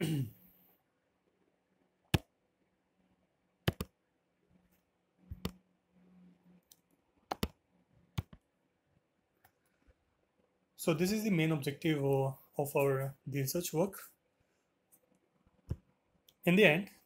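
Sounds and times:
computer mouse clicking: 3.7s - 4.0s, 5.3s - 5.6s, 6.6s - 8.4s.

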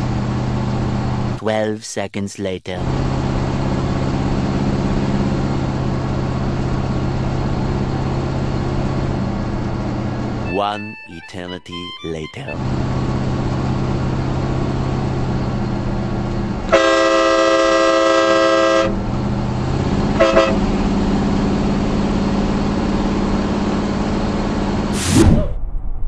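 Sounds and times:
truck engine and tyres droning: 0.0s - 1.4s, 2.8s - 10.4s, 12.6s - 24.9s
train horn blasting: 16.7s - 19.0s, 20.1s - 20.7s.

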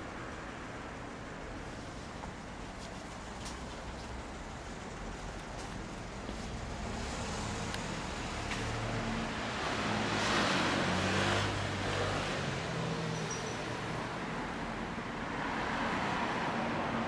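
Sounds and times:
vehicle passing: 6.4s - 13.0s.

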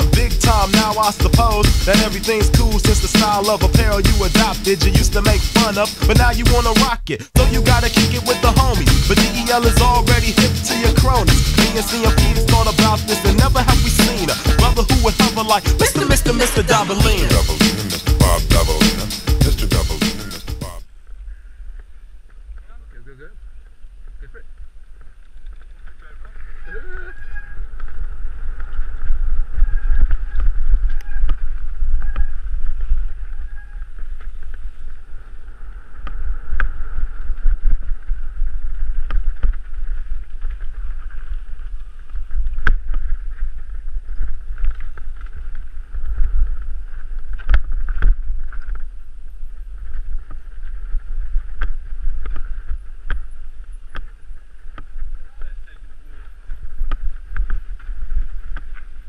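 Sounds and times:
steady high buzz: 0.0s - 20.8s
wind rumbling on microphone: 21.0s - 59.0s
bike knocking and rattling on stones: 37.3s - 59.0s.

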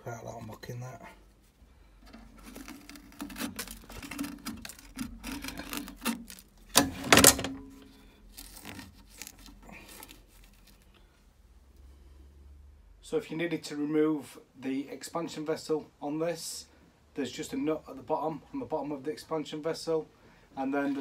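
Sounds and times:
hose and screwdriver handling: 2.0s - 7.6s, 8.3s - 10.9s.

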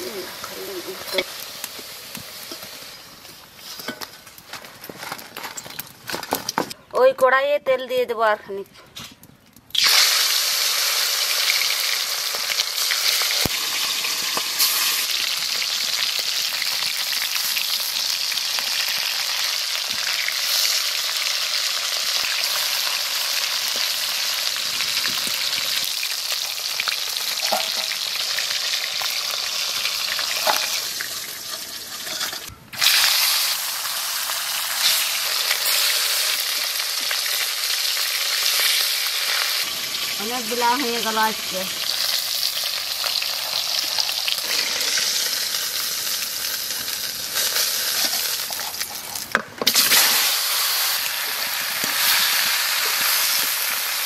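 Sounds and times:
fish frying in oil: 0.0s - 3.2s, 9.7s - 54.0s
metal spatula turning food: 30.2s - 33.0s.

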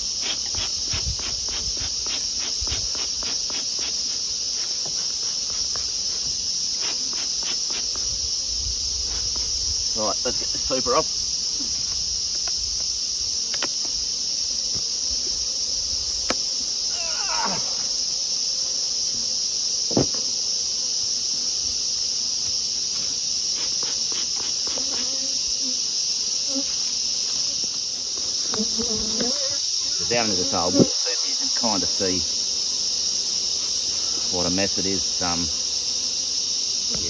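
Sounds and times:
bees buzzing: 0.0s - 37.0s
insects chorus: 0.0s - 37.0s
knocks on wooden boxes: 19.9s - 20.2s.

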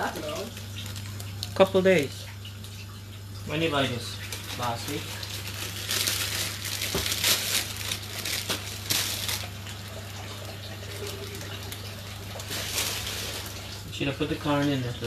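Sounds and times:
plastic packaging crinkling: 0.0s - 1.8s, 4.1s - 13.9s.

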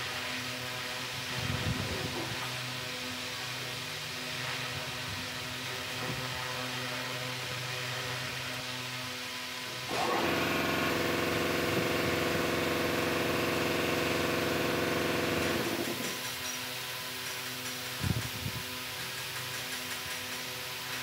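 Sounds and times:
machine humming: 9.9s - 16.2s.

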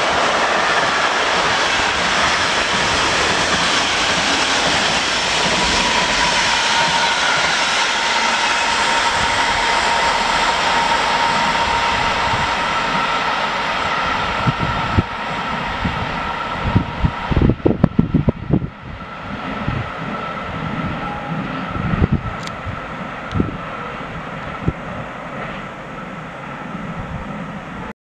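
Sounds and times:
freight train rumbling past: 0.0s - 27.9s
wind thumps on microphone: 14.2s - 21.0s, 21.6s - 23.7s.

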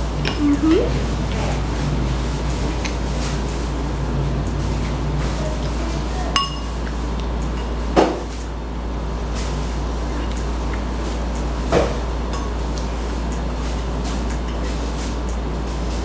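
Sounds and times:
steady low hum: 0.0s - 16.0s
cutlery clinking against a bowl: 6.3s - 6.7s, 12.3s - 12.6s.

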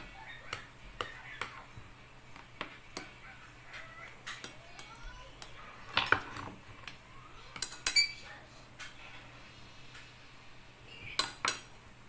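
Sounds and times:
spoon clinking and scraping plate: 7.6s - 8.3s.

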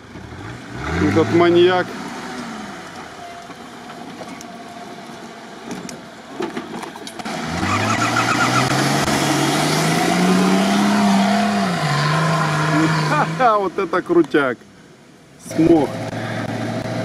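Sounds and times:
engine revving hard: 0.2s - 2.9s, 7.3s - 13.6s, 15.5s - 17.0s.

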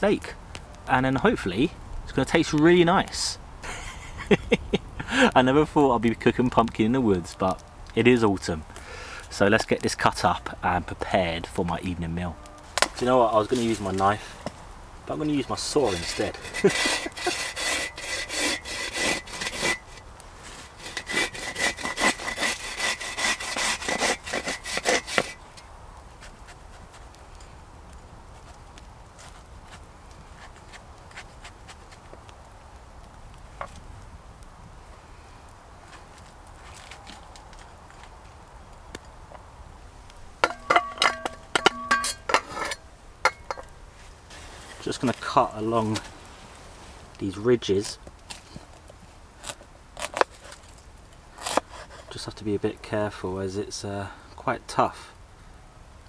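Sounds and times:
hand saw sawing pumpkin: 15.7s - 20.0s, 20.7s - 25.4s, 51.4s - 52.2s
metal objects clinking: 40.4s - 43.7s.

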